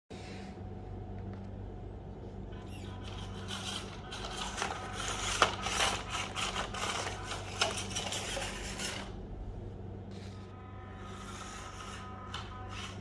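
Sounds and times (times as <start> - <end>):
rc truck electric motor running: 2.6 - 9.2, 10.7 - 13.0
plastic figures clattering: 3.0 - 9.1.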